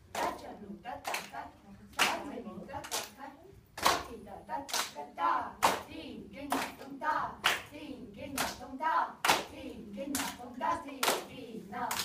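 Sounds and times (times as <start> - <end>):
women chanting rhythm syllables: 0.0 - 12.0
hand claps: 3.8 - 4.1, 6.5 - 7.7, 9.2 - 9.5, 10.1 - 10.4.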